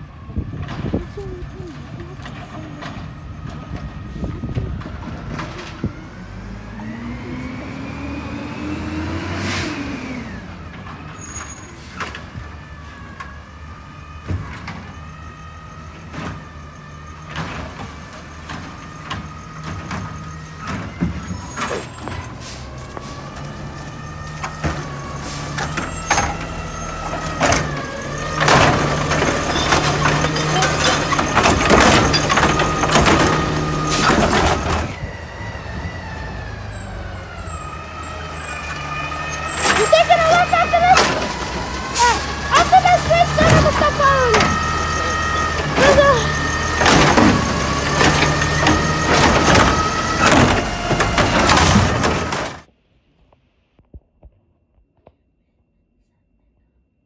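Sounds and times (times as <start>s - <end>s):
garbage truck engine revving: 0.6s - 52.7s
metal clanks and bangs: 25.6s - 34.9s, 45.6s - 52.6s.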